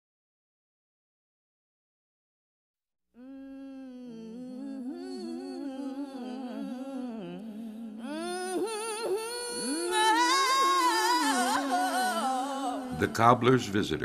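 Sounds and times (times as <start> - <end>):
person humming a melody: 3.2 - 13.4.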